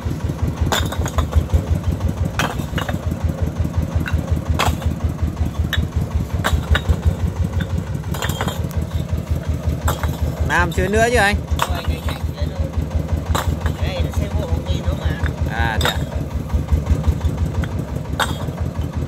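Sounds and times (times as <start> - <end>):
diesel engine idling: 0.0 - 19.0
bricks clinking onto pile: 0.6 - 1.5, 2.3 - 3.1, 4.0 - 9.2, 9.8 - 12.3, 13.3 - 14.2, 15.2 - 16.3, 17.2 - 18.9.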